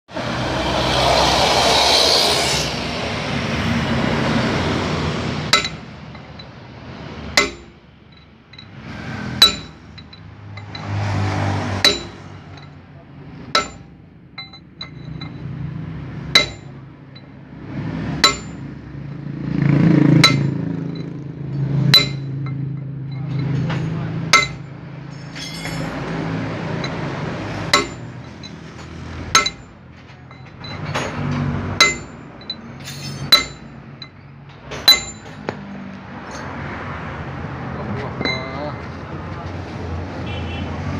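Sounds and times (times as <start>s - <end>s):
hammer striking steel: 4.6s - 17.4s, 18.0s - 19.2s, 20.2s - 36.5s, 37.9s - 38.8s.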